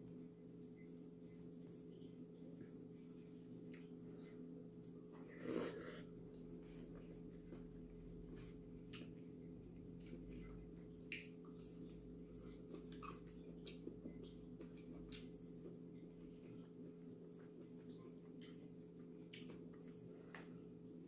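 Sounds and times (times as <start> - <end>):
soft clicks and smacks of eating: 0.0 - 5.2, 6.3 - 21.0
steady low hum: 0.0 - 21.0.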